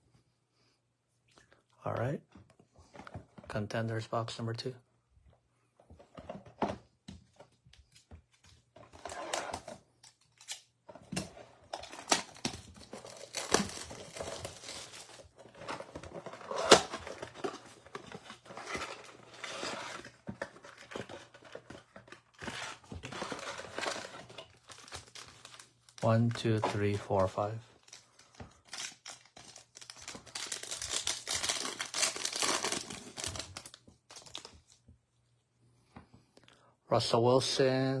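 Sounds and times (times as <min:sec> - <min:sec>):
cardboard rustling: 0:10.8 - 0:34.8
cardboard box tearing: 0:11.8 - 0:21.6, 0:29.8 - 0:33.7.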